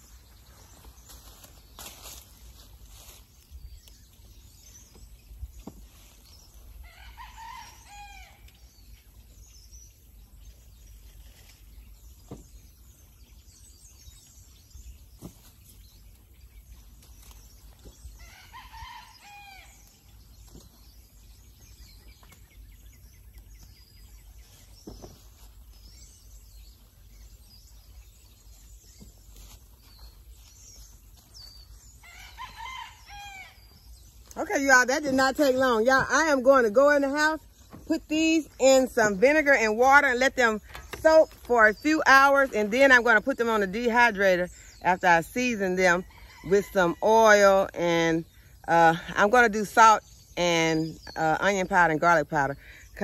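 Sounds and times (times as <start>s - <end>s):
rooster crowing: 32.0s - 33.6s.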